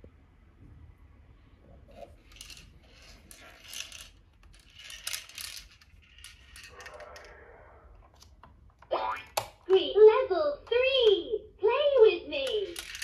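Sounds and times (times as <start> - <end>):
plastic toys clicking and rattling: 2.2 - 7.3, 12.4 - 13.0.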